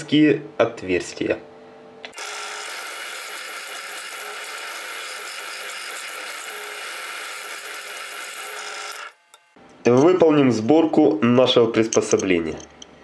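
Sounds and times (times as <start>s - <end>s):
drill press drilling metal: 2.1s - 9.2s.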